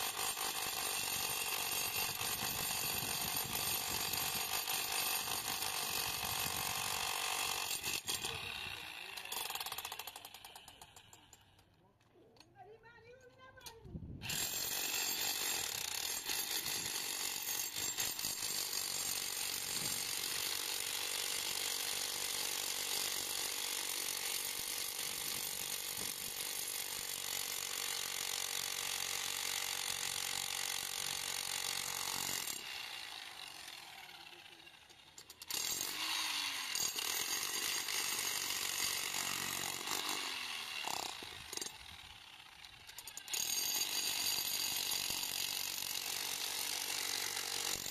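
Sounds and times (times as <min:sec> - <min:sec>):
demolition hammer chiselling concrete: 0:00.0 - 0:11.7, 0:14.2 - 0:47.9.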